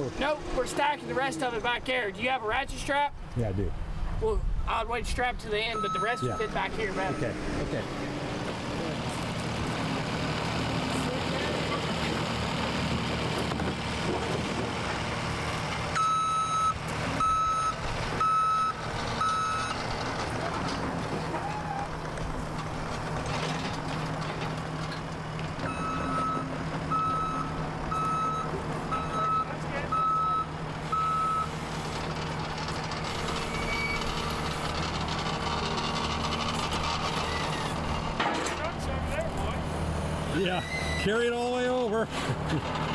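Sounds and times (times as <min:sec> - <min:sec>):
loader engine running: 0:00.0 - 0:04.6, 0:05.5 - 0:42.9
backup alarm beeping: 0:05.6 - 0:07.4, 0:16.0 - 0:19.8, 0:25.7 - 0:31.5.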